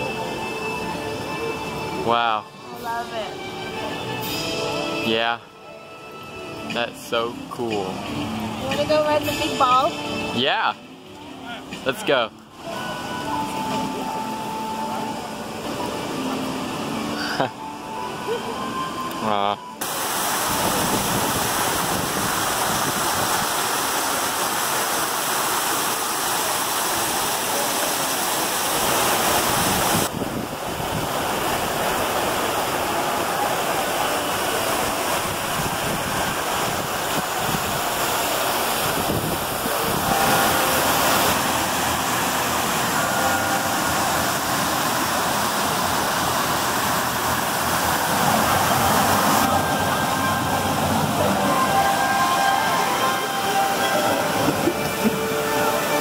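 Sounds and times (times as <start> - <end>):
steady rushing noise: 28.3 - 56.0.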